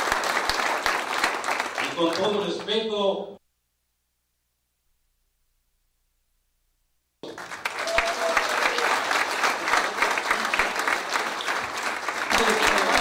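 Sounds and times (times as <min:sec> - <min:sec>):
audience applause: 0:00.0 - 0:02.6, 0:07.2 - 0:13.0.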